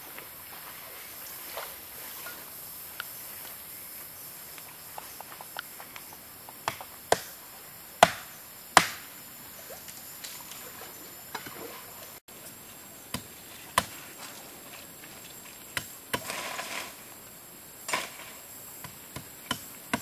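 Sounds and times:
machete chopping: 6.6 - 7.4, 8.0 - 9.1, 17.9 - 20.0.

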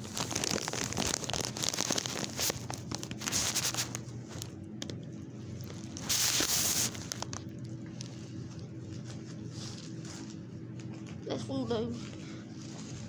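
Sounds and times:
paper wrapper crinkling and tearing: 0.0 - 4.6, 5.5 - 11.2.

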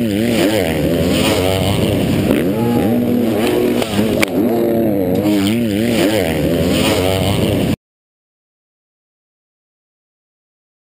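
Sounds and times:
motocross bike engines revving: 0.0 - 7.8.

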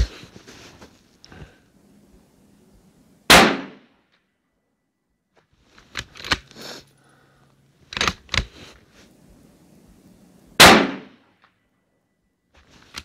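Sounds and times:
rifle bolt clicks and clacks: 5.7 - 6.5, 7.9 - 8.5
rifle shot report: 10.6 - 11.2.

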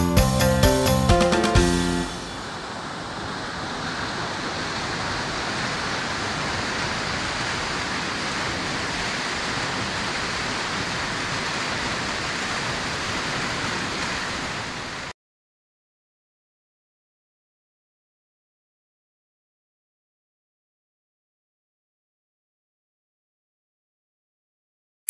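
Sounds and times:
waterfall rushing: 0.8 - 15.1.

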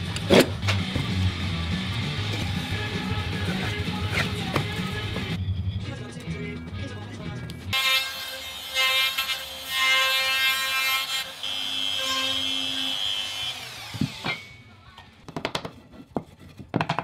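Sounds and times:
power tool motor on wood: 7.8 - 14.3.

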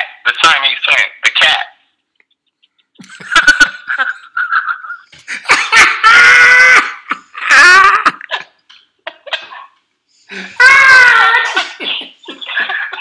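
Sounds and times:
high-pitched laughter: 2.3 - 9.8, 10.6 - 13.0.

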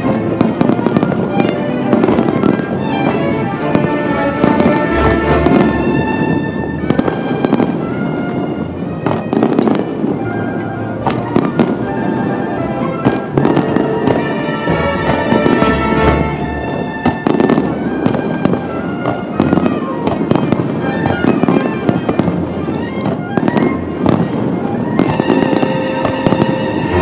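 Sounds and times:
fireworks bursting: 0.0 - 27.0
music playing: 0.0 - 27.0.

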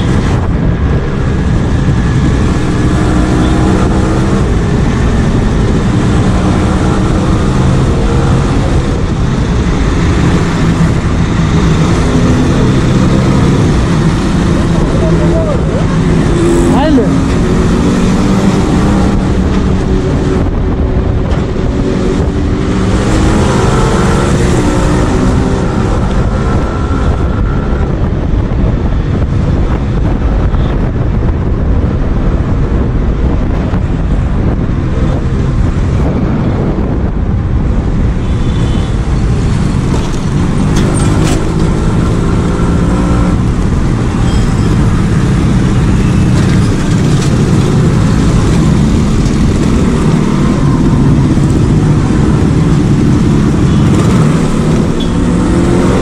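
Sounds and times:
wind noise on microphone: 0.0 - 56.0
two-stroke motorcycle engine accelerating: 1.1 - 28.4, 39.3 - 56.0.

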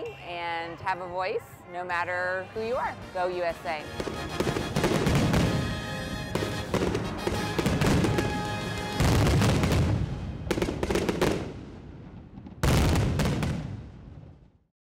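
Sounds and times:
fireworks bursting and crackling: 3.4 - 14.4
heavy fireworks booms: 3.9 - 14.6.

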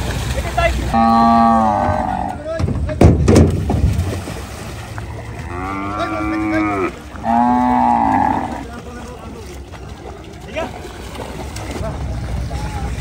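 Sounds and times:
cow mooing: 0.9 - 2.4, 5.0 - 8.7
loud knock: 2.6 - 3.8.

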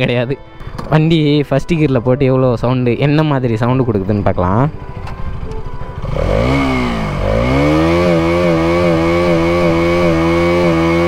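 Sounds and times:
motorcycle engine revving: 4.8 - 11.0.

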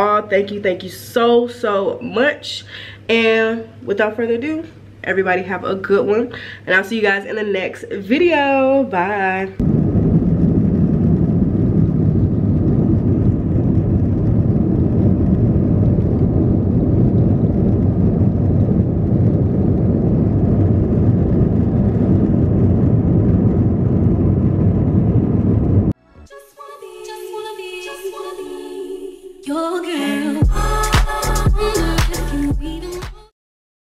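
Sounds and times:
vehicle engine rumble: 9.6 - 26.0.

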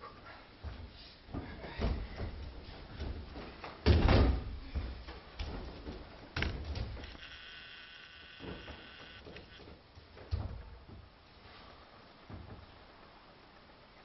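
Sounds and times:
bodies thudding on a mat: 1.8 - 7.0.

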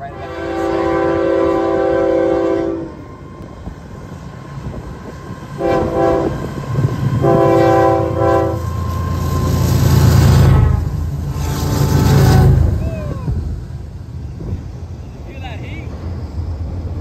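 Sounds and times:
locomotive horn blasts: 0.0 - 3.0, 5.6 - 6.4, 7.2 - 8.8, 10.3 - 12.8
locomotive engine rumble: 0.0 - 17.0.

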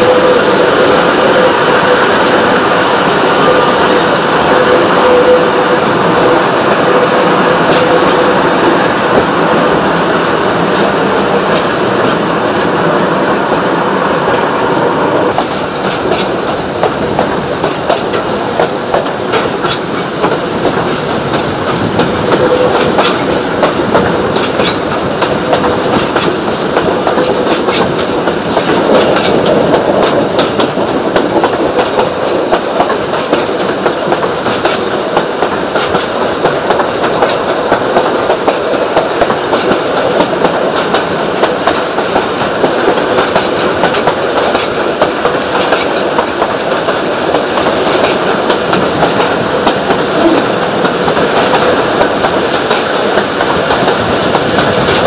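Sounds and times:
train wheels rumbling on rails: 0.0 - 55.0
wheels clicking over rail joints: 15.3 - 55.0.

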